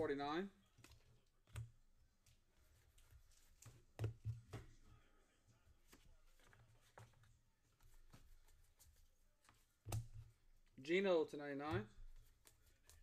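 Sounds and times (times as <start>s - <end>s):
trading cards flipping: 12.0s - 13.0s.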